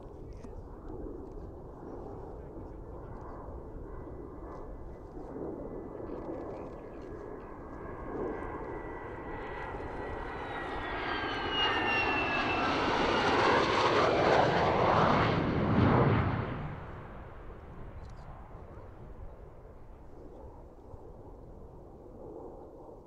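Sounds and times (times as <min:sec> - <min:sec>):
jet flying past: 0:07.2 - 0:23.0.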